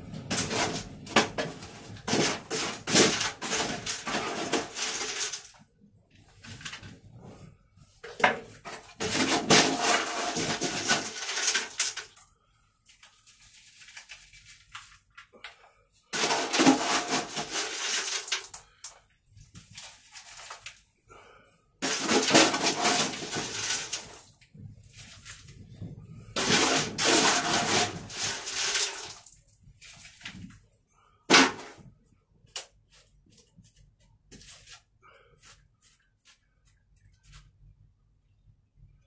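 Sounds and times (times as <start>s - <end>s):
soil poured into plastic pot: 0.2s - 5.6s, 9.0s - 12.2s, 12.9s - 15.4s, 16.1s - 18.9s, 19.5s - 20.9s, 21.8s - 25.6s, 26.2s - 30.3s
light scuffing: 32.8s - 37.5s.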